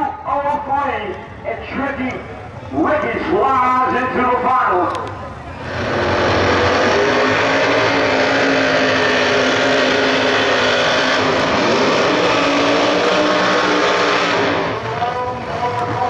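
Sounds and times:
drag car engine revving: 3.8s - 16.0s.

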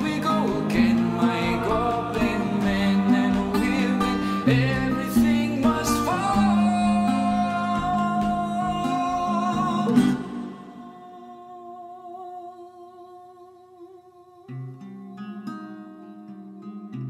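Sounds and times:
acoustic guitar strumming: 0.0s - 12.5s, 14.4s - 17.0s
man singing: 0.0s - 13.4s.

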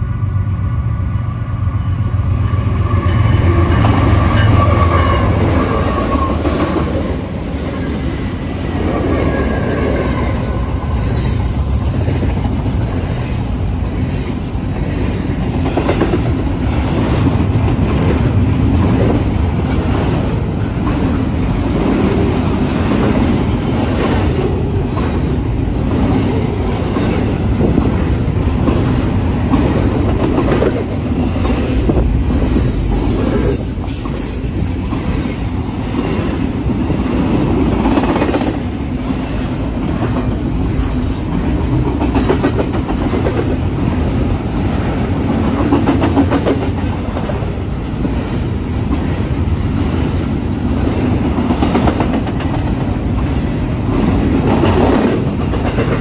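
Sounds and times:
steel wheels rumbling on rail: 0.0s - 56.0s
high wheel squeal: 2.7s - 6.5s.

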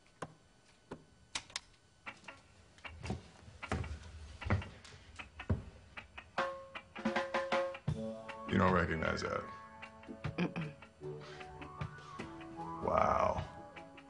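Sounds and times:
music: 6.3s - 14.0s.

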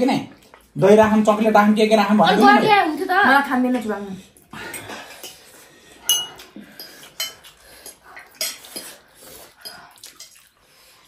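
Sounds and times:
forks clinking on plates: 6.1s - 7.5s.

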